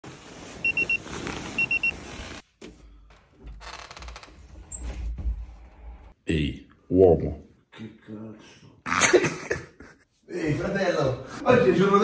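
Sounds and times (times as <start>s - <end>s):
alarm clock beeping: 0.6s - 1.0s.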